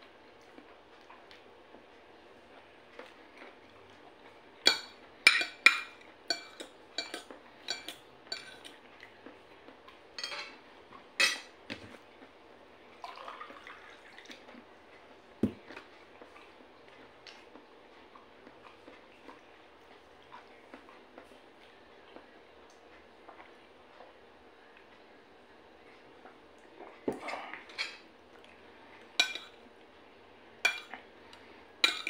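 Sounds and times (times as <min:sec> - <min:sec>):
cutlery clinking on a plate: 0:04.7 - 0:08.7, 0:10.2 - 0:10.6, 0:11.2 - 0:11.8, 0:29.2 - 0:29.6, 0:30.7 - 0:31.0.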